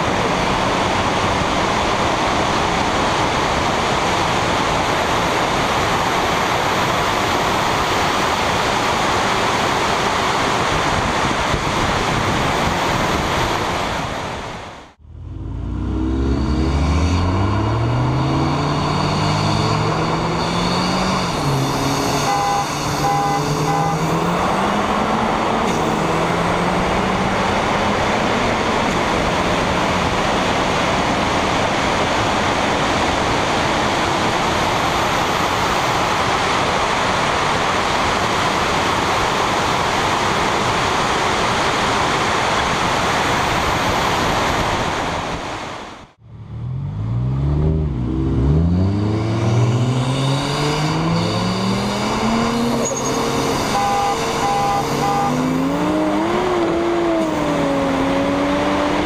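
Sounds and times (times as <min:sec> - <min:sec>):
car engines revving: 0:00.0 - 0:59.0
wind and road noise: 0:00.0 - 0:59.0
short beeps: 0:18.2 - 0:24.0, 0:52.8 - 0:55.5.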